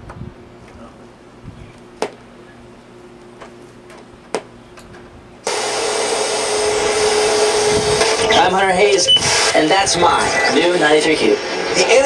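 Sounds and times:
radio static hiss: 5.5s - 12.0s.

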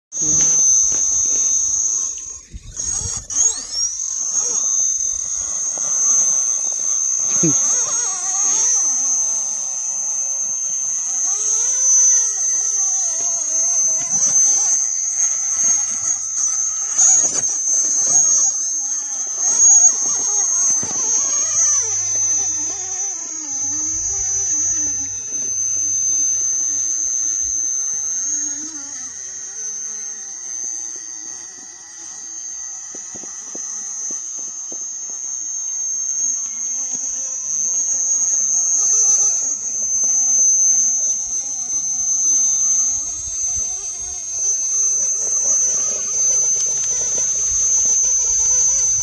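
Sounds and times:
electric motor whining: 0.1s - 49.0s
steady high-pitched tone: 0.1s - 49.0s.

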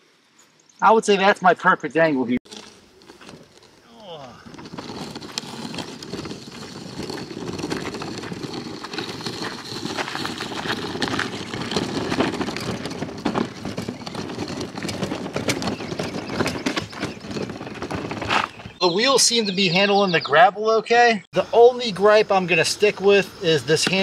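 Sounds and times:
footsteps on gravel: 2.4s - 18.8s
wheels rolling over gravel: 2.4s - 18.8s, 21.4s - 24.0s.

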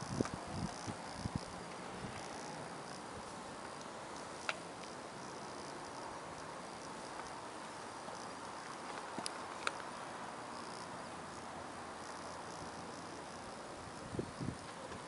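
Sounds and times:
small clicks: 8.8s - 9.9s.

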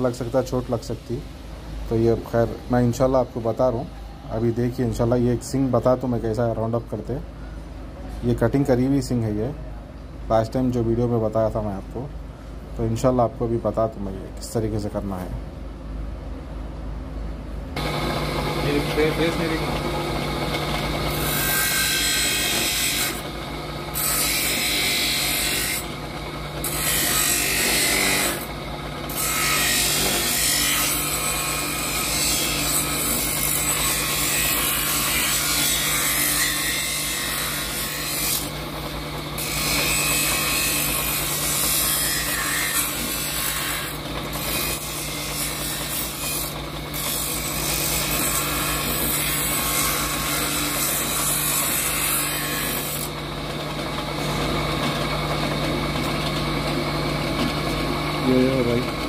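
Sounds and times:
horn grinding on grinder wheel: 17.8s - 53.2s
bench grinder motor hum: 17.8s - 59.0s.

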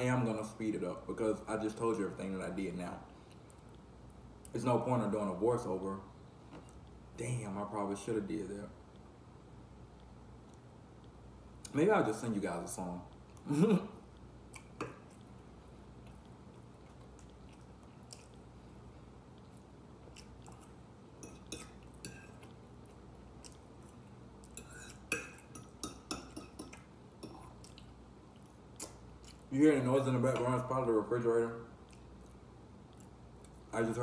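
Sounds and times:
steady low hum: 0.0s - 34.0s
chewing: 14.1s - 29.5s, 31.8s - 33.7s
fork scraping on a plate: 24.6s - 27.4s.

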